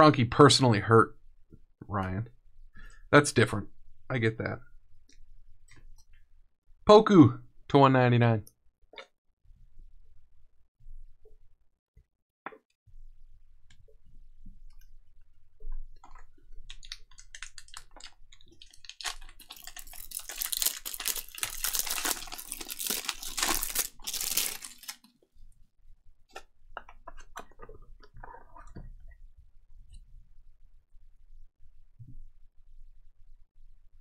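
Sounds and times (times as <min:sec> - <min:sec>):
foil wrapper tearing and crinkling: 0:16.7 - 0:25.1.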